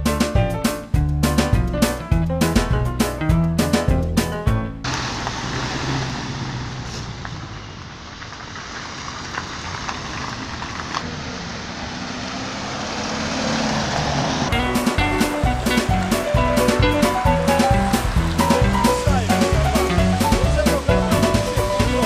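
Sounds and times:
passing vehicles: 4.8s - 22.0s.

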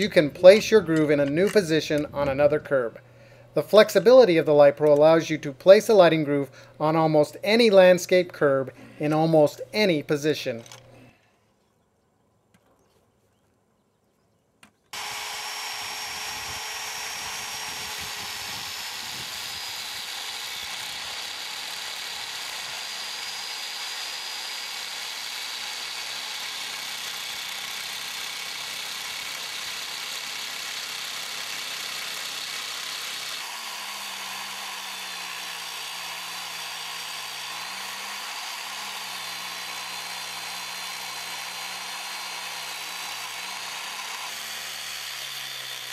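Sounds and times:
machine cutting concrete: 15.0s - 45.9s.

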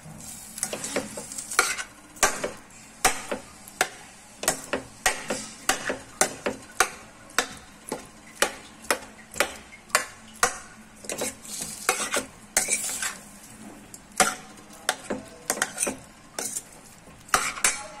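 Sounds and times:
potatoes sizzling in oil: 0.0s - 18.0s
spoon clinking and scraping in pan: 11.0s - 13.2s, 14.2s - 16.7s, 17.3s - 17.9s.

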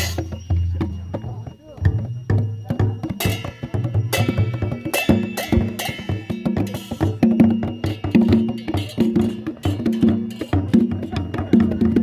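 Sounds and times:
cymbal clashes: 0.0s - 0.5s, 3.2s - 11.3s
barrel drums played by hand: 0.0s - 12.0s.

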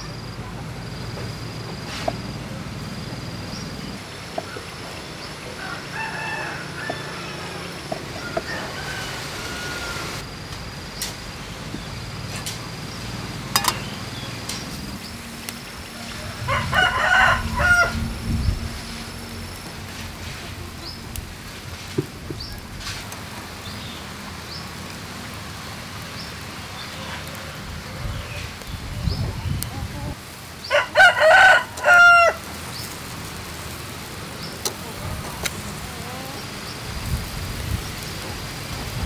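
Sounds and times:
rooster crowing: 5.4s - 10.2s, 15.9s - 18.2s, 30.6s - 32.6s.

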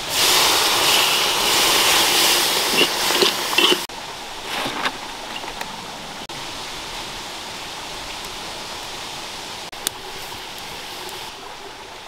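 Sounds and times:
food sizzling in a wok: 0.0s - 3.9s
stirring scrapes and taps: 2.7s - 5.6s.

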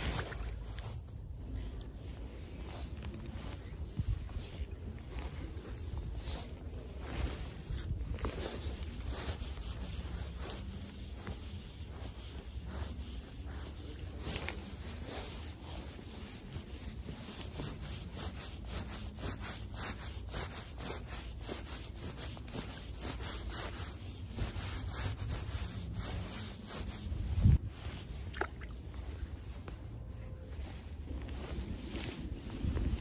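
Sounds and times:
fly line rasping through fingers: 2.6s - 28.8s.

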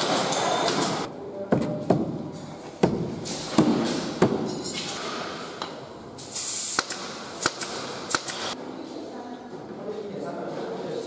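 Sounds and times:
short hiss: 6.2s - 7.6s.

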